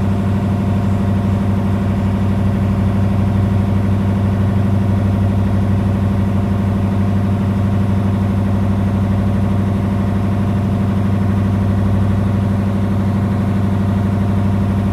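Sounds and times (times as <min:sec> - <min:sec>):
motorboat engine humming: 0:00.0 - 0:14.9.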